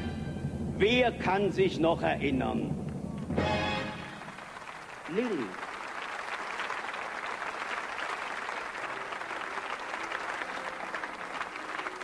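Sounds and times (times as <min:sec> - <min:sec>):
studio audience applauding: 0:03.5 - 0:12.0.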